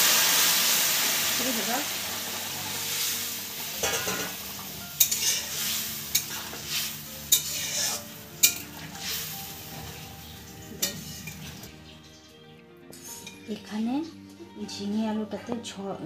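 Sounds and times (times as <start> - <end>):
water sizzling in hot oil: 0.0 - 12.4
metal spatula scraping a pan: 3.7 - 12.2, 12.9 - 13.4.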